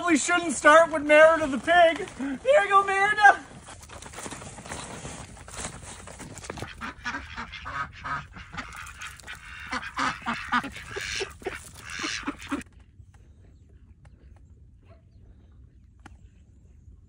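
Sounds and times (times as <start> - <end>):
ducks quacking: 6.3 - 12.6.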